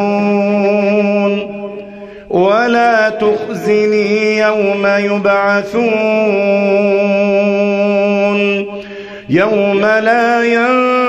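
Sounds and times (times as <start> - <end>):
man chanting recitation: 0.0 - 11.0.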